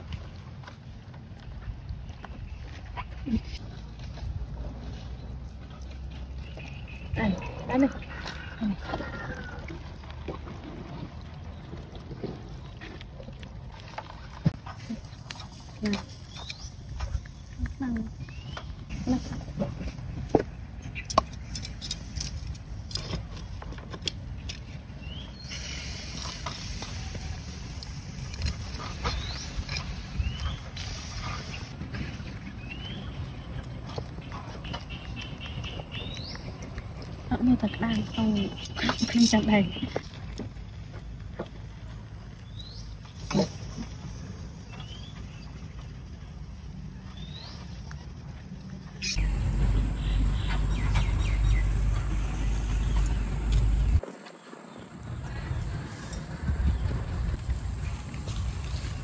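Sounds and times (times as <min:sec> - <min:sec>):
hiss: 0:25.4 - 0:29.5
steady low rumble: 0:48.3 - 0:54.0, 0:54.9 - 0:59.0.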